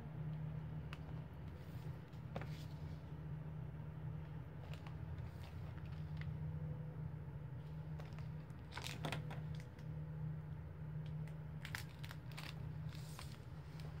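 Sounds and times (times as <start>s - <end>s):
low hum: 0.0s - 14.0s
books rustling and knocking: 1.0s - 2.9s.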